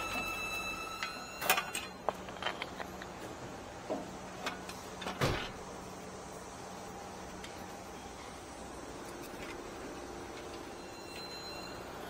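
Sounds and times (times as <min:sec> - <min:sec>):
metal clinks and knocks: 0:01.5 - 0:03.1.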